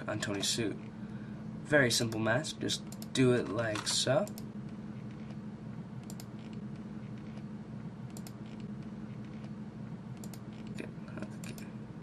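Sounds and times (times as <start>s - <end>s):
steady low hum: 0.0s - 12.0s
computer mouse clicking: 6.0s - 7.4s, 8.1s - 9.5s, 10.2s - 10.8s.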